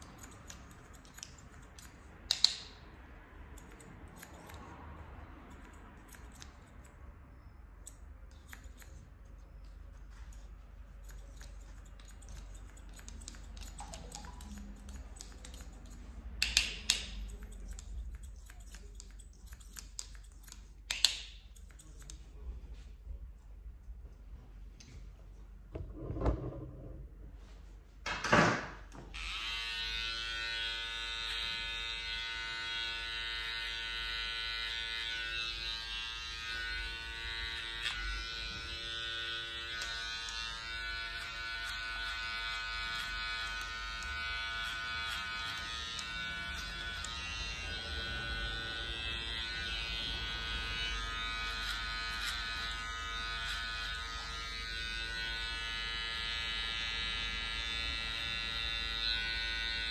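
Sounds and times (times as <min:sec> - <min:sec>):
electric clipper buzzing: 0:29.2 - 0:59.9.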